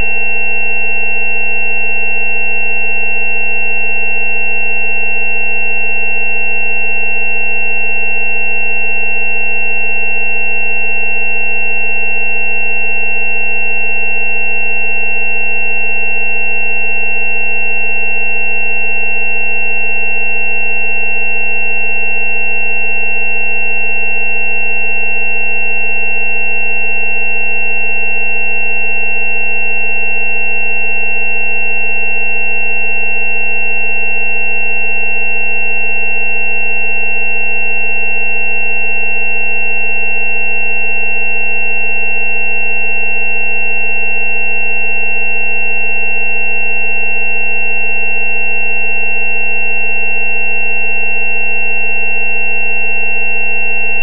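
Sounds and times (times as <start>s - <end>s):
electronic tone chord: 0.0s - 16.4s.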